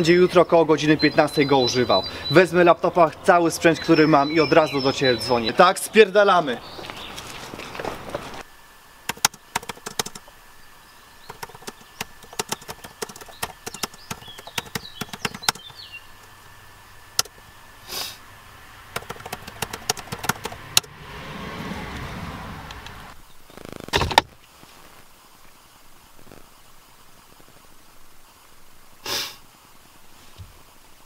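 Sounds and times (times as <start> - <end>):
laptop keyboard typing: 9.1 - 10.3, 11.3 - 15.8, 18.9 - 20.9.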